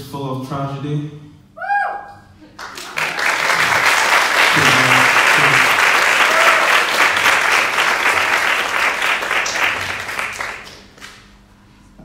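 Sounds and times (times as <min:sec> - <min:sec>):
audience applauding: 0:02.5 - 0:11.3.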